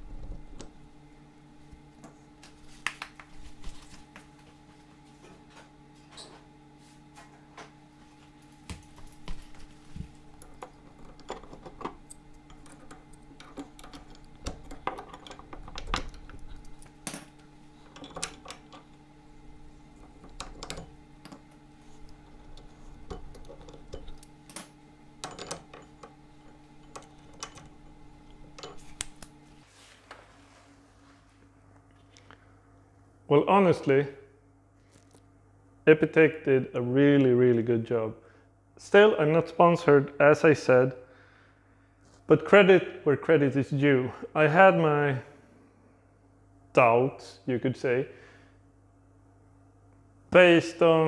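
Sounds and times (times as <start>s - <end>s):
metal parts and tools clinking: 10.4s - 19.0s, 22.4s - 27.7s.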